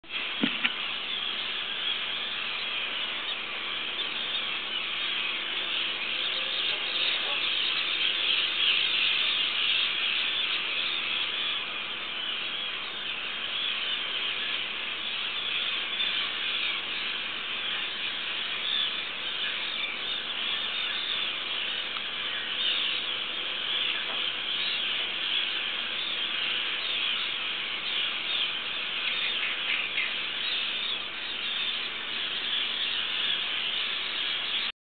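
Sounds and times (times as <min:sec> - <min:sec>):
many birds chattering: 0:00.0 - 0:34.7.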